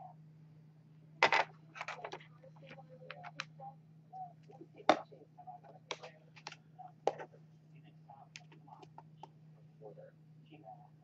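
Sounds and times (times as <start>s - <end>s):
steady low hum: 0.0s - 11.0s
plastic cases clicking and tapping: 5.9s - 7.3s.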